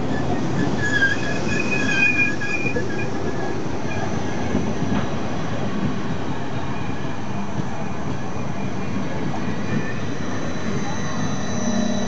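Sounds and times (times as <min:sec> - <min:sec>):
high wavering squeal: 0:00.0 - 0:04.6, 0:09.5 - 0:12.0
train wheels rumbling: 0:00.0 - 0:12.0.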